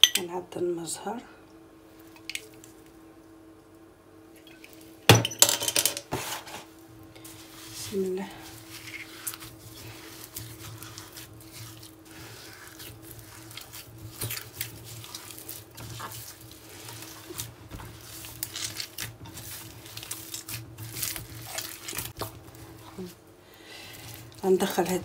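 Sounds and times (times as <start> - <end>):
faint steady hum: 0.0 - 25.0
hand kneading paste squishing: 7.1 - 25.0.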